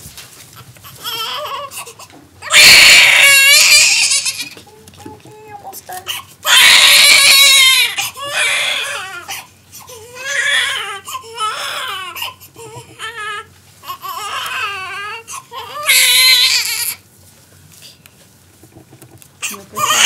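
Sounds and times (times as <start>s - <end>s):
baby crying: 1.0s - 4.6s, 6.1s - 17.0s, 19.4s - 20.0s.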